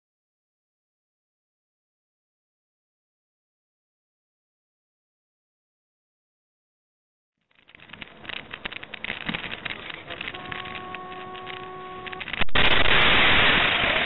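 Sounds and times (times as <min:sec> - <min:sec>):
vehicle rumbling: 0:07.6 - 0:14.0
collision crash: 0:12.2 - 0:14.0.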